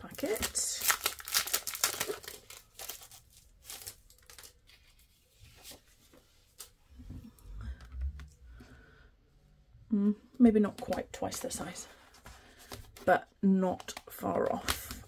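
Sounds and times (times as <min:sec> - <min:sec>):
plastic packet crinkling: 0:00.1 - 0:04.7.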